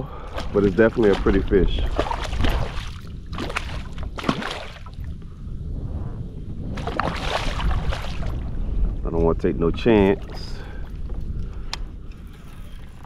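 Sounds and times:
water lapping around kayak: 0:00.0 - 0:05.1, 0:06.8 - 0:08.9, 0:09.9 - 0:13.0
wind rumbling on microphone: 0:00.0 - 0:13.0.

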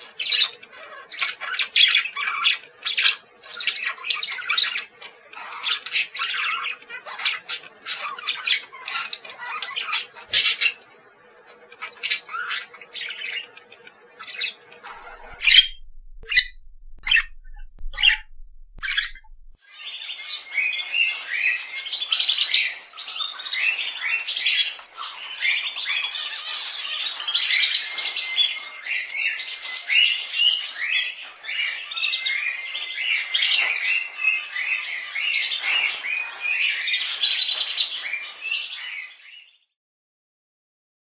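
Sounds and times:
budgerigar chirping and warbling: 0:14.3 - 0:19.6.

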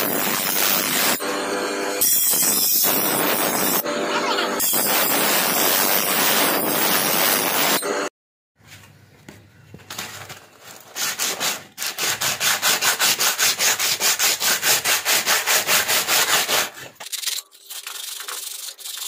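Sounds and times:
sandpaper rasping on steel: 0:10.9 - 0:19.0.

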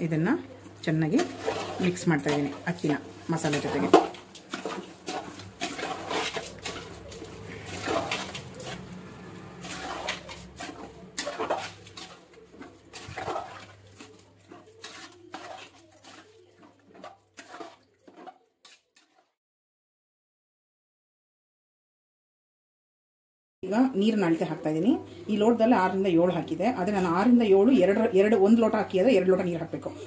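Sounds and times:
metal spoon scraping a pot: 0:01.0 - 0:19.3.

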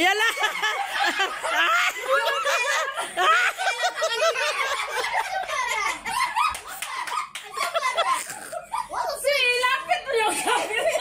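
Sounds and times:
people laughing and calling out: 0:00.0 - 0:11.0.

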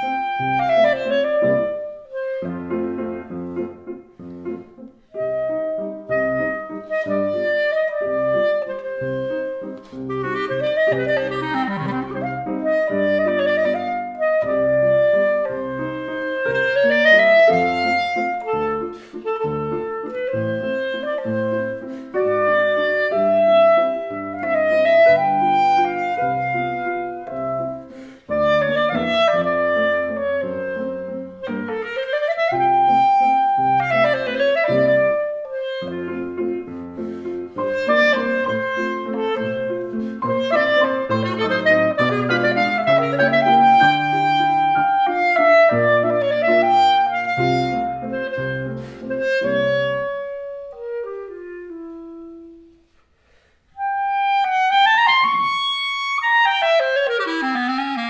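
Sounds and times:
piano chords: 0:00.0 - 0:53.0
clarinet melody with pitch slides: 0:00.0 - 0:58.0.

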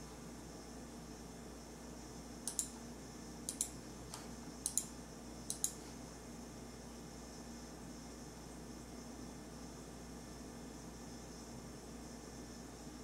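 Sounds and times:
computer mouse clicking: 0:02.4 - 0:02.8, 0:03.5 - 0:04.9, 0:05.5 - 0:05.8.

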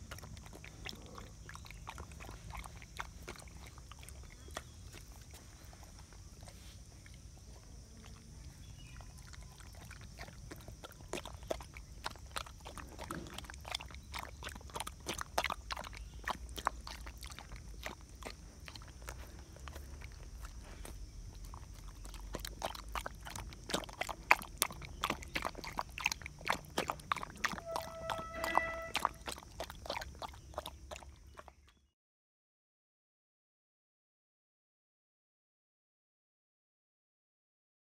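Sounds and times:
dog lapping and slurping: 0:00.0 - 0:31.9
brief high tone: 0:27.6 - 0:29.2.

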